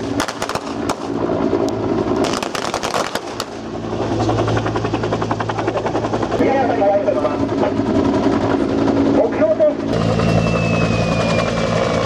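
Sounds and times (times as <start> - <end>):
helicopter rotor and engine: 0.0 - 12.0
machine-gun fire: 2.2 - 3.5.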